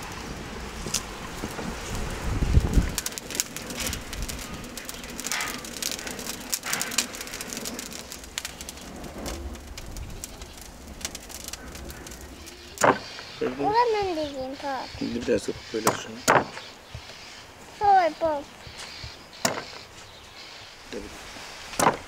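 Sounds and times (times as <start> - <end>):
low rumble: 0.0 - 12.8
wood fire crackling: 0.0 - 22.0.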